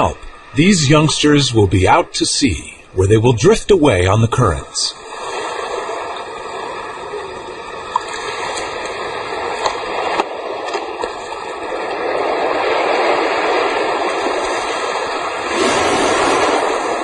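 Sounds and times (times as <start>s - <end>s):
surf washing over sand: 0.0s - 17.0s.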